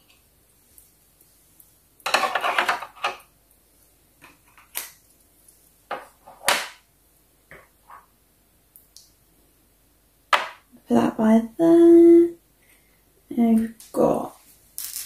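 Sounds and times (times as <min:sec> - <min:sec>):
plastic toy pieces clattering: 0:14.8 - 0:15.0.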